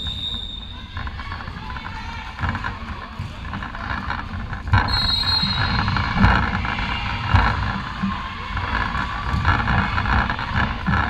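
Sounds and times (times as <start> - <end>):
sports hall background din: 0.0 - 11.0
high squeak: 4.9 - 6.0.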